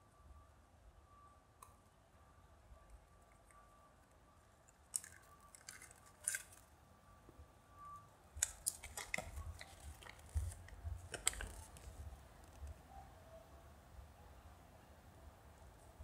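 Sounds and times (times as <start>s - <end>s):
paper crinkling: 4.9s - 6.6s, 8.4s - 12.6s
plastic capsule clicks: 5.0s - 6.6s, 8.4s - 11.9s.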